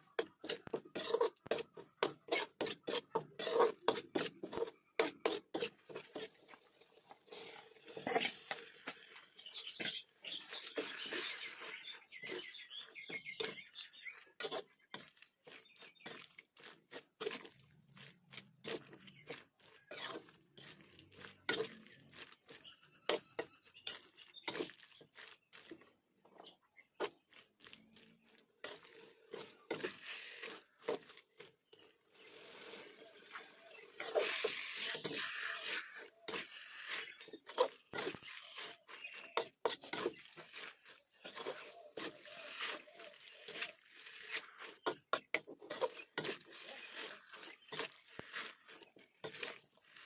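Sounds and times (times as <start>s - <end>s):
metal spatula scraping a wok: 0.0s - 25.8s, 28.3s - 50.0s
wet squish of meat: 24.2s - 25.7s.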